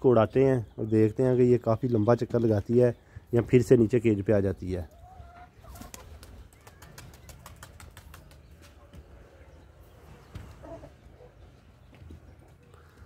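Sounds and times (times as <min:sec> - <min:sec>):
pigeon wings flapping: 0:05.7 - 0:08.8.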